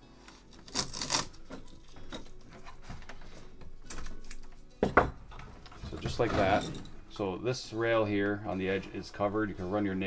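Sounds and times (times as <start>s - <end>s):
tape ripping off roll: 0.3s - 1.8s.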